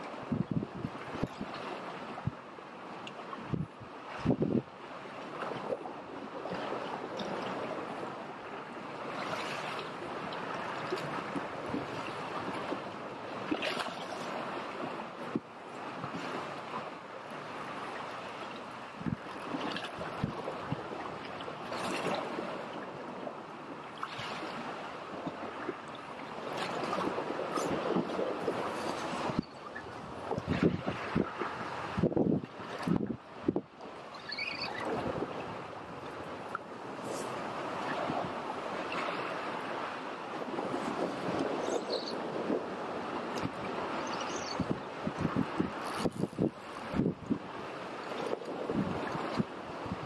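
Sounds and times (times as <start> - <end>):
wind on microphone: 0.0 - 2.4, 3.3 - 4.7, 17.7 - 22.6, 26.4 - 50.0
waves lapping on rocky shore: 0.0 - 50.0.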